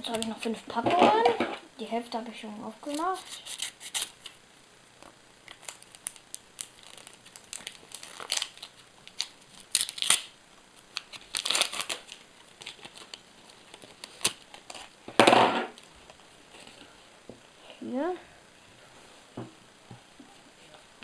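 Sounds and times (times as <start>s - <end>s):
wrappers crinkling and rustling: 5.4s - 15.0s.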